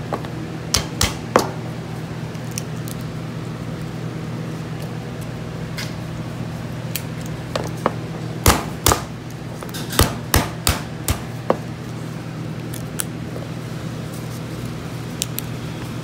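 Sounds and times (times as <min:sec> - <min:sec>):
steady low hum: 0:00.0 - 0:16.0
lobster shell cracking: 0:02.3 - 0:03.1, 0:12.6 - 0:13.2.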